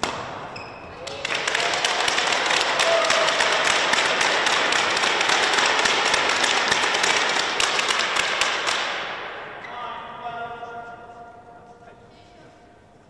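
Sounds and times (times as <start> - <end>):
spectators applauding: 1.0 - 8.8.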